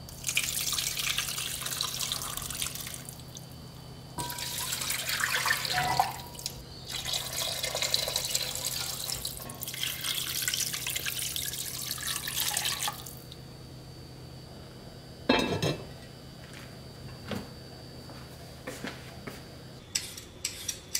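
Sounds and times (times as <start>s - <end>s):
liquid pouring into a pot: 0.1s - 3.2s, 4.2s - 13.2s.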